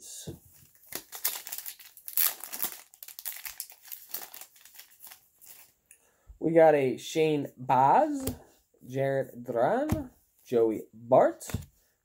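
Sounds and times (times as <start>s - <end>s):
wrapper crinkling while torn open: 0.7s - 5.8s.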